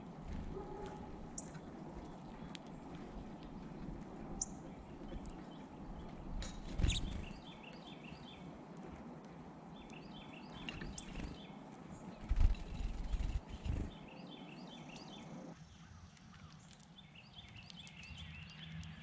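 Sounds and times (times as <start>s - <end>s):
outdoor background hum: 0.0s - 19.0s
songbirds chirping: 0.0s - 19.0s.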